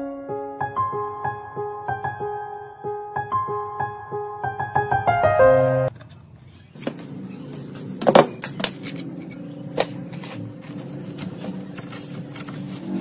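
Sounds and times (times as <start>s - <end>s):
tools clicking and knocking: 8.0s - 12.7s.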